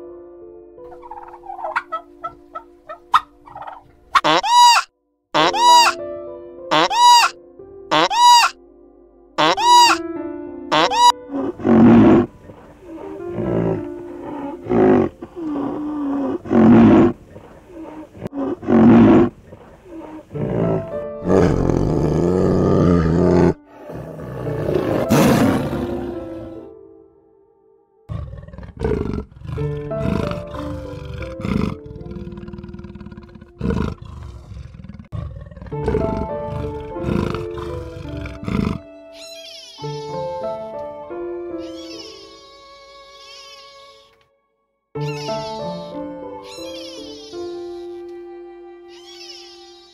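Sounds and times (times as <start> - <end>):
gentle background music: 0.0 - 34.6, 35.3 - 49.9
short animal calls: 3.2 - 6.0, 6.7 - 8.6, 9.4 - 10.0, 10.7 - 11.1, 41.6 - 44.1, 45.0 - 48.0
tiger roaring and growling: 11.3 - 26.7, 28.1 - 38.9.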